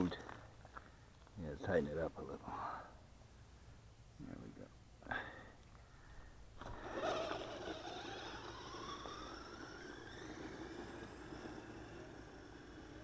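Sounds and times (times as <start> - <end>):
electric motor whining: 6.6 - 13.0
tyres rumbling on gravel: 6.6 - 13.0.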